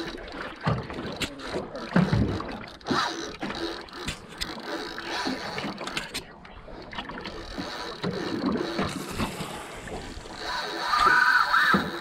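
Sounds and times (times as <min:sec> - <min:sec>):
fishing reel whirring: 0:00.0 - 0:12.0
water noise: 0:00.0 - 0:12.0.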